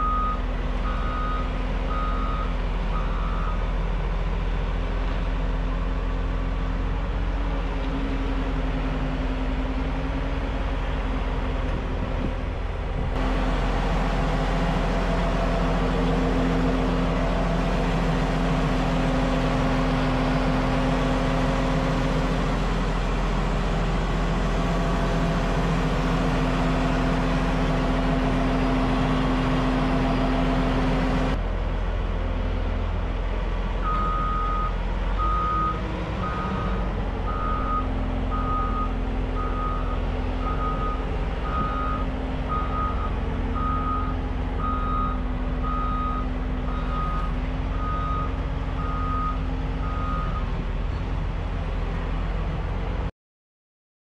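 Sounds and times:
reversing alarm beeping: 0.0s - 3.6s, 33.8s - 50.5s
diesel engine running: 0.0s - 53.1s.

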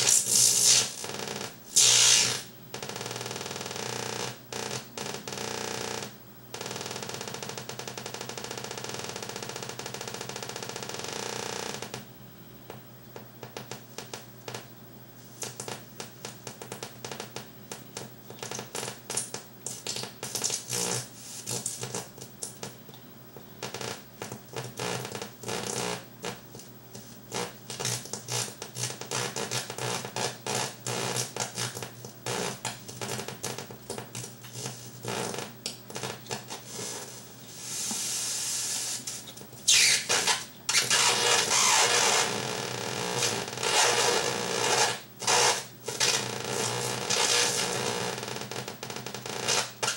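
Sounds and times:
electronic crackles and squeaks: 0.0s - 12.0s, 15.4s - 22.7s, 23.4s - 26.5s, 27.3s - 49.9s
electronic hiss and noise burst: 1.7s - 2.5s, 36.7s - 42.3s.

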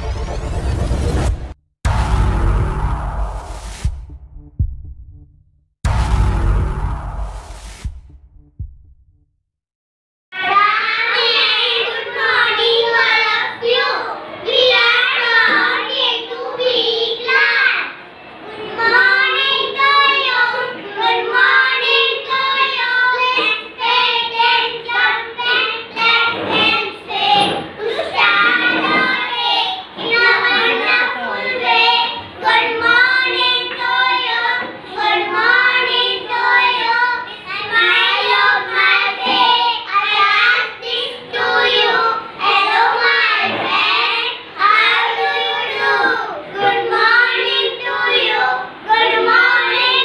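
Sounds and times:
young children singing: 10.4s - 50.0s.

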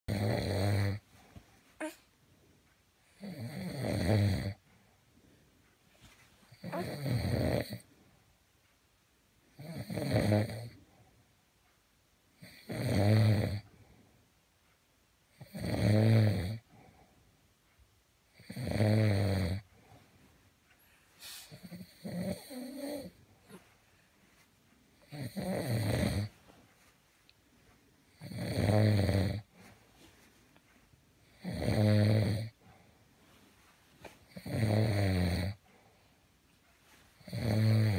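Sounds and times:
man snoring: 0.1s - 1.0s, 3.1s - 4.6s, 6.5s - 7.8s, 9.6s - 10.8s, 12.4s - 13.6s, 15.4s - 16.6s, 18.4s - 19.6s, 21.5s - 23.1s, 25.0s - 26.3s, 28.1s - 29.5s, 31.3s - 32.6s, 34.3s - 35.6s, 37.2s - 37.9s
quiet breathing: 0.3s - 8.4s, 10.5s - 11.7s, 13.5s - 15.6s, 16.5s - 18.6s, 19.5s - 34.8s, 35.5s - 37.9s.

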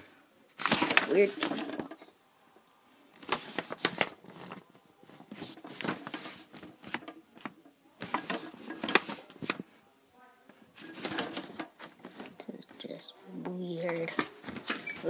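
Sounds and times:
paper pages rustling: 0.6s - 2.0s, 3.2s - 9.7s, 10.7s - 12.4s, 13.8s - 15.0s.

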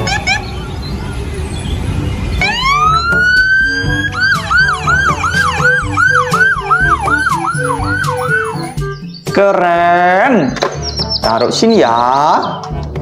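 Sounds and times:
ambulance siren wailing and yelping: 0.0s - 1.4s, 2.3s - 8.9s.

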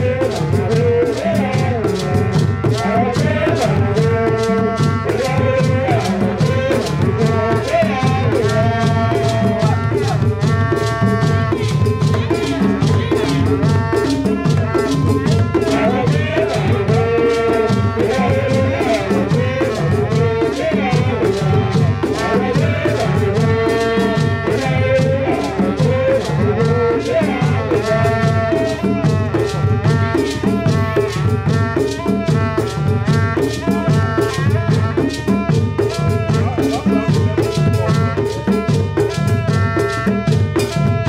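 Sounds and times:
hand drums: 0.0s - 41.0s
wavering melody line: 33.5s - 40.0s.

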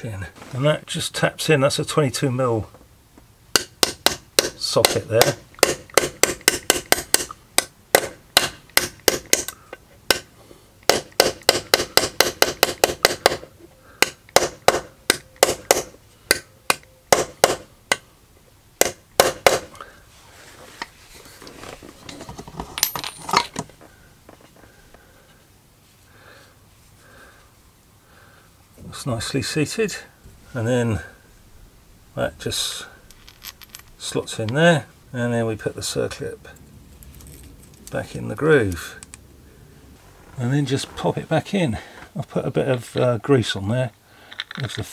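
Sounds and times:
handling metal parts: 20.7s - 24.6s, 33.0s - 34.5s, 36.9s - 38.1s.

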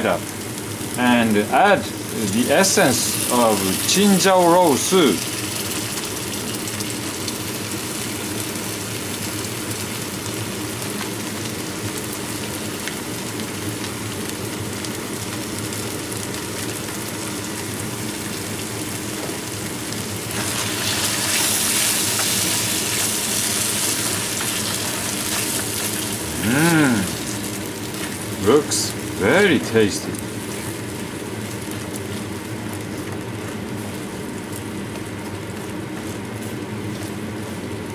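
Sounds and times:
meat sizzling in a wok: 0.0s - 37.9s
low steady hum: 16.6s - 37.9s.

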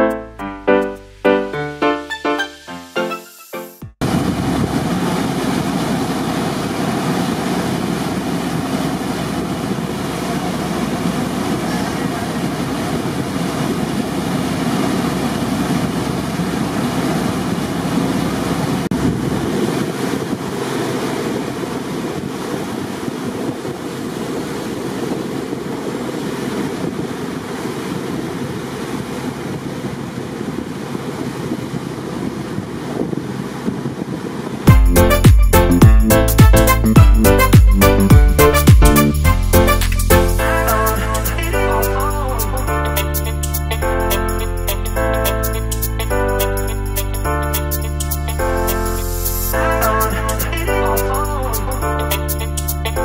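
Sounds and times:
water spray rushing past boat: 3.2s - 34.7s, 38.5s - 53.0s
wind buffeting microphone: 4.0s - 34.7s
deep rumble: 34.7s - 42.0s.

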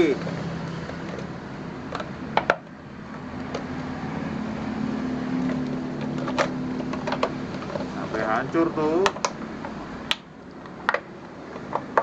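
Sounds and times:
sharp plastic cracks: 9.0s - 12.0s.

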